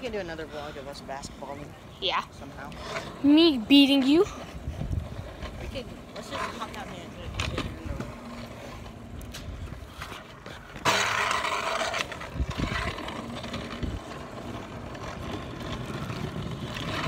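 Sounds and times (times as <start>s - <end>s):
scooter wheels rolling on pavement: 0.0s - 17.0s
wind on microphone: 4.2s - 6.0s, 11.8s - 17.0s.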